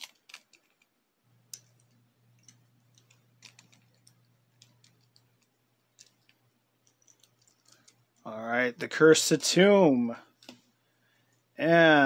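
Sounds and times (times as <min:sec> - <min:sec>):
plastic and metal parts clicking: 0:00.0 - 0:00.9, 0:01.5 - 0:08.0.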